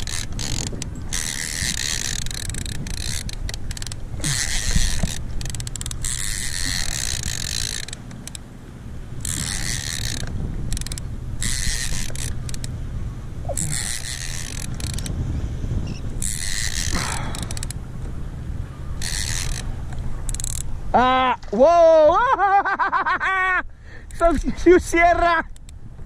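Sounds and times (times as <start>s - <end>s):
fishing reel ratcheting: 0.0s - 8.5s, 9.2s - 12.8s, 13.5s - 15.2s, 15.9s - 17.8s, 19.0s - 20.8s
wind and water rumble: 0.0s - 26.0s.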